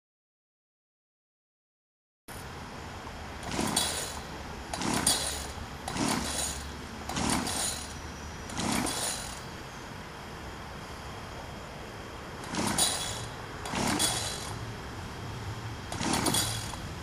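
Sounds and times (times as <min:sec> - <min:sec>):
recoil starter pulls whirring: 0:02.3 - 0:09.7, 0:12.1 - 0:17.0.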